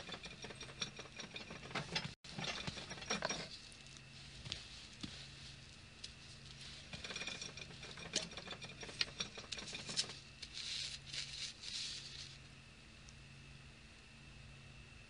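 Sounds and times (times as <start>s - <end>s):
paper crackling and rustling: 9.7s - 12.4s.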